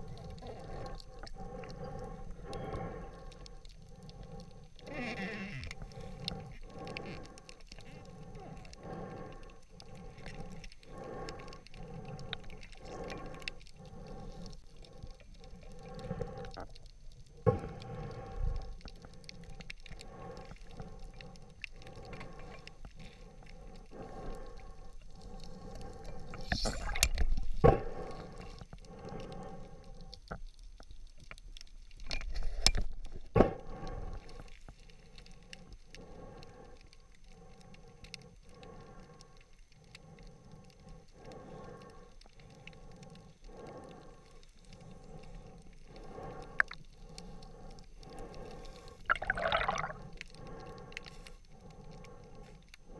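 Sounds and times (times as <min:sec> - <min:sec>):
steady pulsing underwater hum: 0:00.0 - 0:52.9
water noise: 0:00.0 - 0:52.9.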